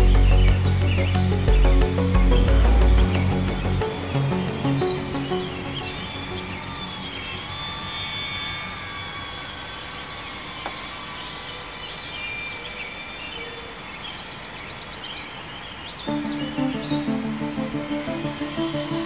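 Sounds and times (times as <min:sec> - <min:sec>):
background music: 0:00.0 - 0:07.6, 0:16.1 - 0:19.0
drone motors whining: 0:00.0 - 0:19.0
bird chirps: 0:11.3 - 0:19.0.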